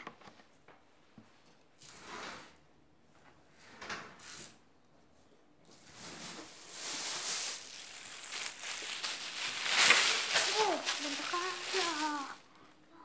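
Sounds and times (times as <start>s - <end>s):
plastic bag rustling: 5.7s - 12.5s.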